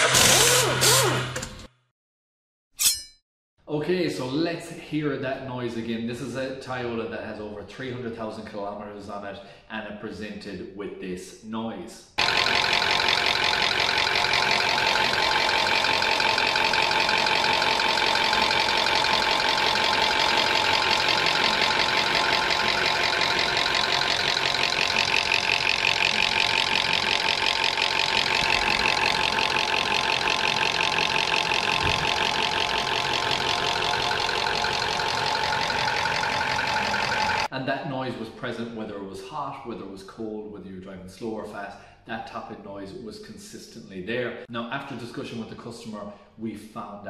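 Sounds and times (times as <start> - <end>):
car engine idling with ticking: 12.2 - 37.5.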